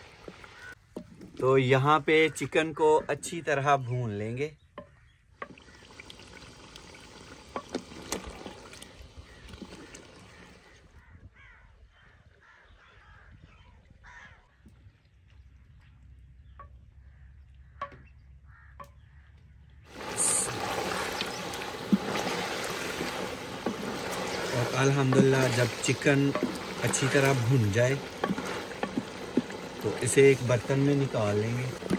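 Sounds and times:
chicken sizzling in hot oil: 0:19.9 - 0:31.9
spatula scraping and knocking: 0:21.9 - 0:29.7.

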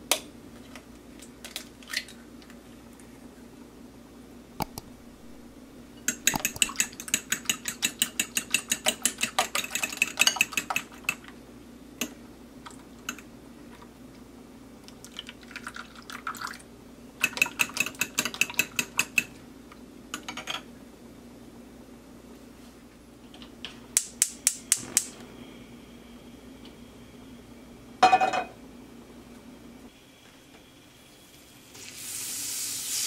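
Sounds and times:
fork whisking eggs in bowl: 0:06.2 - 0:11.2.

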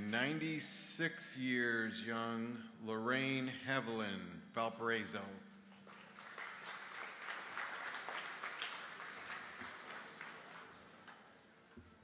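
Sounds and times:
audience applauding: 0:05.7 - 0:11.4.

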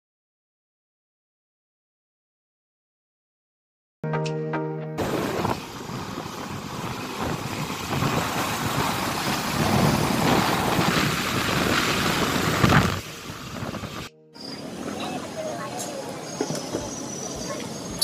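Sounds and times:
wind on microphone: 0:05.0 - 0:14.1
road noise: 0:05.0 - 0:18.0.

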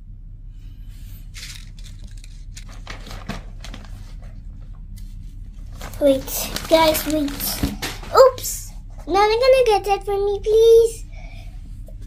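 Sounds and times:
plastic bag rustling and crinkling: 0:01.2 - 0:08.6.

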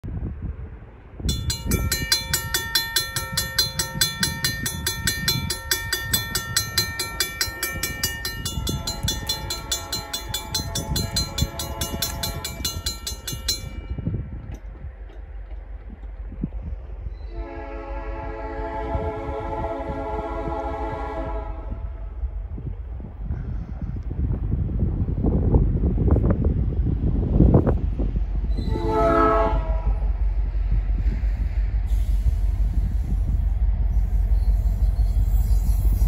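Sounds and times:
railroad crossing bell ringing: 0:01.2 - 0:14.4
locomotive horn: 0:08.7 - 0:12.7, 0:17.3 - 0:22.0, 0:28.6 - 0:30.1.

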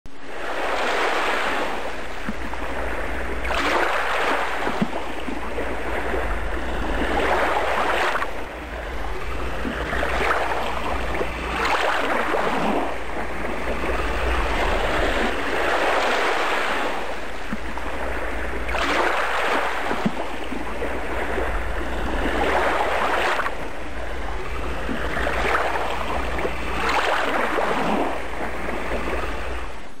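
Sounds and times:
waves breaking and washing back: 0:00.1 - 0:30.0
low surf rumble: 0:05.4 - 0:18.7, 0:20.3 - 0:29.7.

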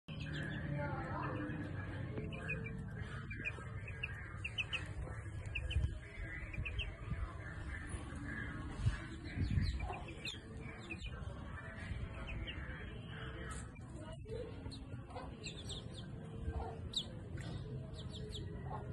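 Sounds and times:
chicks peeping: 0:00.1 - 0:18.9
steady low rumble: 0:00.4 - 0:14.8.

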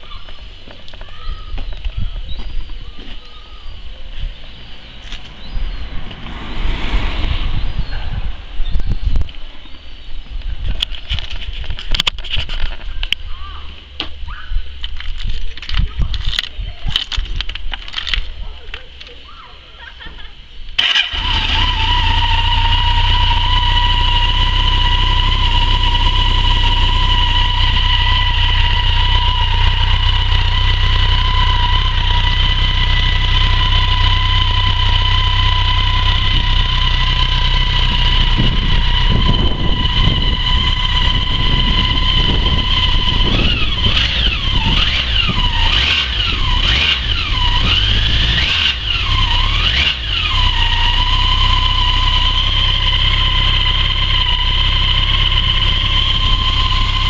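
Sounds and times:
motorcycle engine idling: 0:19.2 - 0:57.0.

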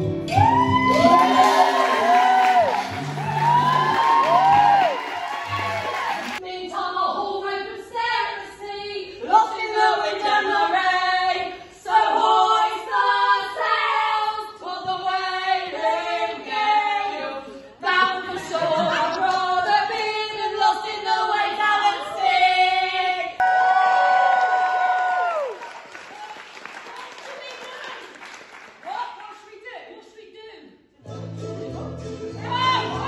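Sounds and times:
choir singing: 0:09.2 - 0:23.4, 0:31.0 - 0:33.0.

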